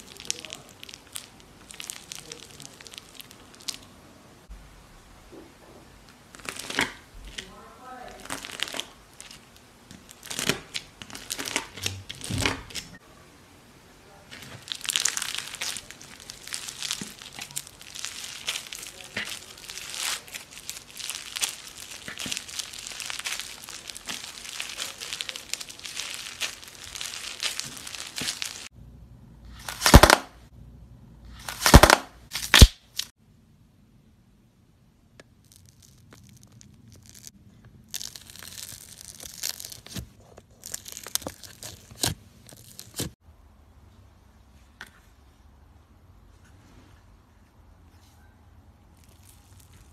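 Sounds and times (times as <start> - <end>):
bead slime crackling: 0.0 - 4.0, 6.3 - 12.9, 14.3 - 28.7, 29.5 - 30.4, 31.4 - 33.1, 35.2 - 43.2, 48.9 - 49.9
loud short crunches: 29.6 - 30.4, 31.4 - 33.1.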